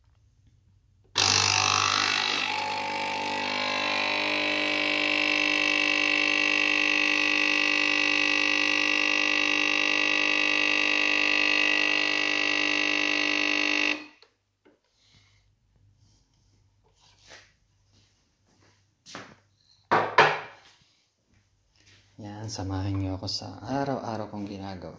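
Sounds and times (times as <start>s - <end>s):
espresso machine pump buzzing: 1.2s - 14.2s.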